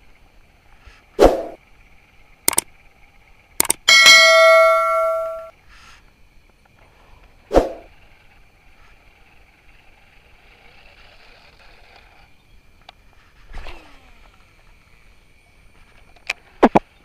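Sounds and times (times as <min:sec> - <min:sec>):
sharp clicks: 0:02.5 - 0:02.7, 0:03.6 - 0:05.5
metal clang ringing: 0:03.7 - 0:05.5.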